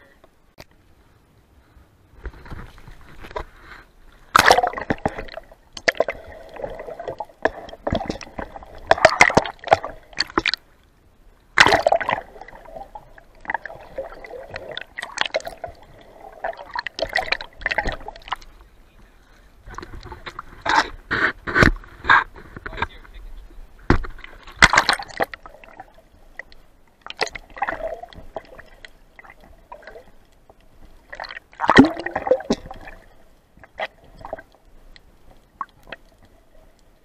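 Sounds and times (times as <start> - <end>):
muffled water gurgling and sloshing: 1.0 - 37.0
knocks and splashes: 4.3 - 10.6, 11.6 - 12.7, 16.4 - 18.4, 23.9 - 25.8, 31.1 - 33.0.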